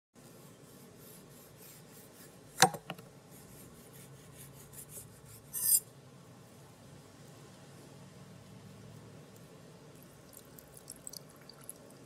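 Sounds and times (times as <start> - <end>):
knife scraping: 3.4 - 5.9.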